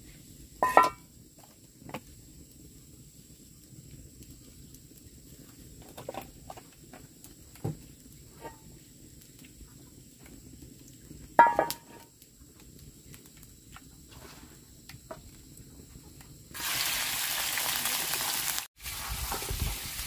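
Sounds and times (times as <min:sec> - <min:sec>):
metal frying pan clanging on stand: 0:00.6 - 0:01.0, 0:11.4 - 0:12.0.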